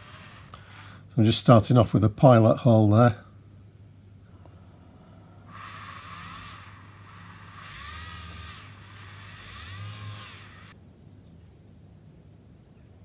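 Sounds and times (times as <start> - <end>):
rotary tool drilling plastic: 5.5 - 10.8.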